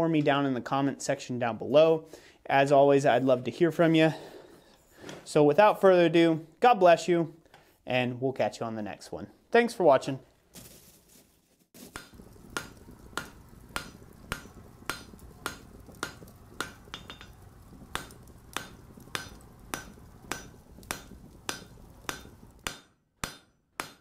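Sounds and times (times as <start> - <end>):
hammer striking an anvil: 12.0 - 17.4, 18.0 - 24.0
low hum: 12.2 - 22.7.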